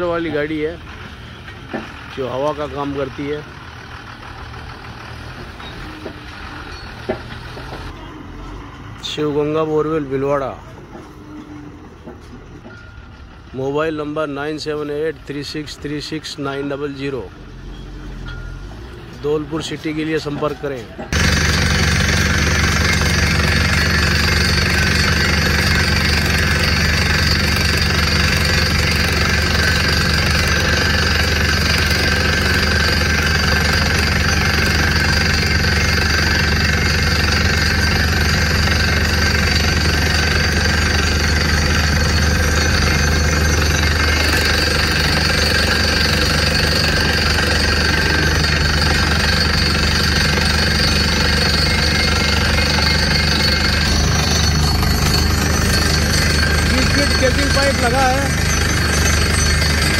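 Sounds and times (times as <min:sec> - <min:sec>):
engines and compressor running: 0:00.0 - 0:59.9
air hammer pounding: 0:21.0 - 0:59.9.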